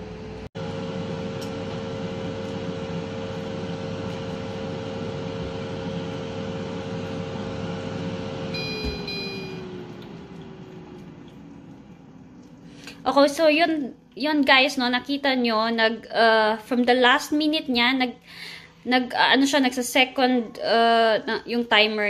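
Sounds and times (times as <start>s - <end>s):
air fryer fan humming with whine: 0.0s - 14.2s
timer beeps: 8.6s - 9.6s.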